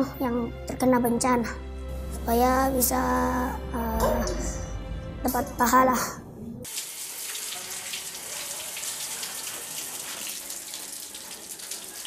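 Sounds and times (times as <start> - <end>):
water running from taps: 6.6 - 12.0.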